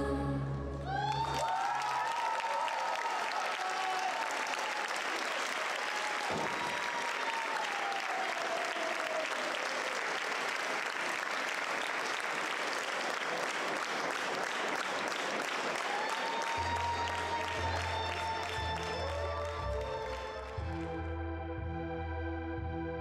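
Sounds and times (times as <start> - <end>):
music: 0.0 - 1.3, 16.3 - 23.0
audience applauding: 0.8 - 21.1.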